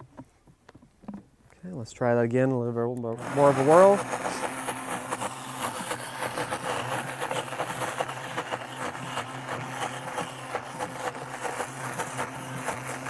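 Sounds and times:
blender motor running: 0:03.1 - 0:13.0.

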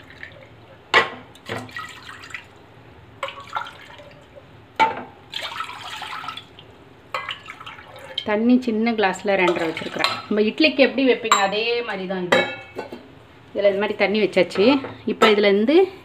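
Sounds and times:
water splashing into pot: 0:00.0 - 0:02.6, 0:03.2 - 0:08.3, 0:09.4 - 0:10.3.

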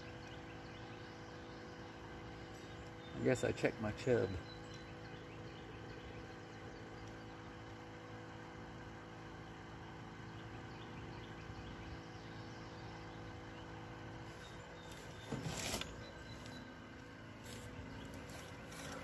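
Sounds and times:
faint outdoor background hum: 0:00.0 - 0:19.0.

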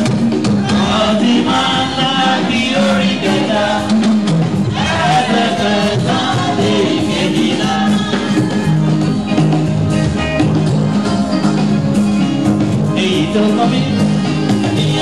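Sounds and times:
electronic keyboard accompaniment: 0:00.0 - 0:15.0
steady beat: 0:00.0 - 0:15.0
church choir singing over loudspeakers: 0:00.6 - 0:09.2, 0:13.0 - 0:15.0.

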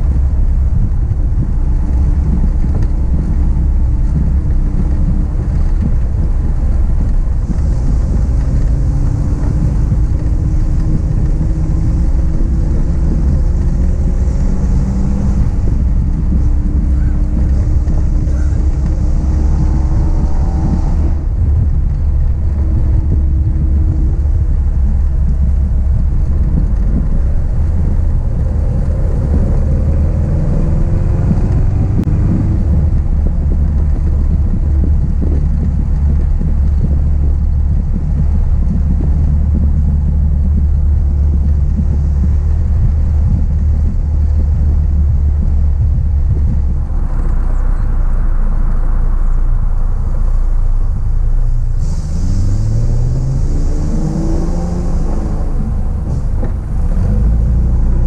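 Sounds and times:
car engine running: 0:00.0 - 0:58.0
wind rumble on microphone: 0:00.0 - 0:58.0.

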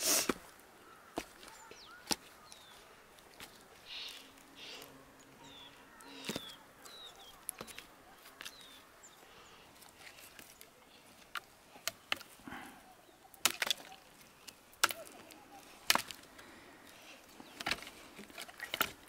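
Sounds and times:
blade chopping firewood: 0:06.2 - 0:08.7, 0:13.4 - 0:16.4, 0:17.3 - 0:19.0
wood pieces knocking: 0:13.4 - 0:16.3, 0:17.4 - 0:19.0.

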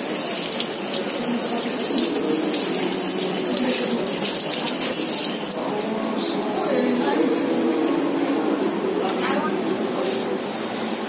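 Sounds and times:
tap water splashing into basin: 0:00.0 - 0:06.8.

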